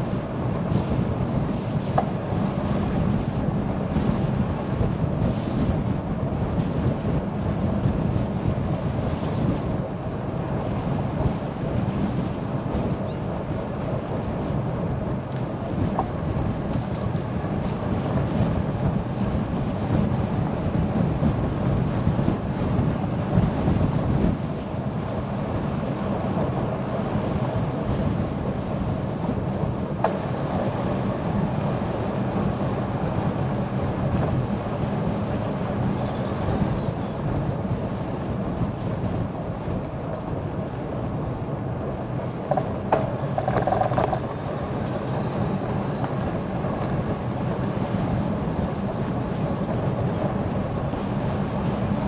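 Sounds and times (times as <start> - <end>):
bicycle tyre and road noise: 0.0 - 52.0
wind rumble on microphone: 0.0 - 52.0.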